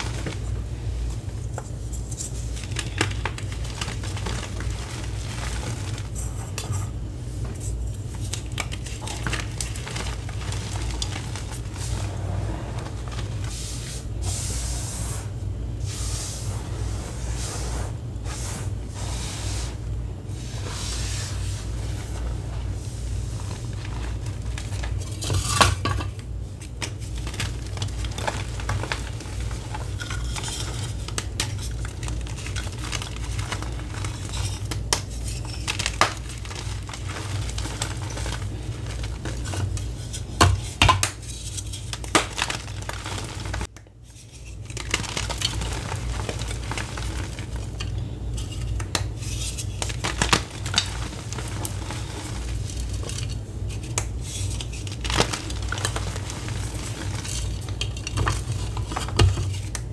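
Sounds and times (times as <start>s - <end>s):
low steady hum: 0.0s - 59.9s
powder crumbling between hands: 1.6s - 6.6s, 7.6s - 12.1s, 26.6s - 43.7s, 44.6s - 59.9s.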